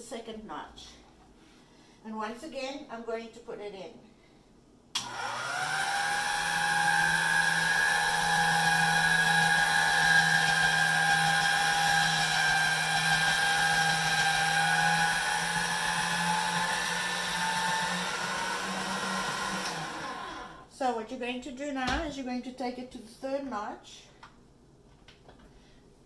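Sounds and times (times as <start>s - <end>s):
electric motor whining: 5.0s - 20.6s.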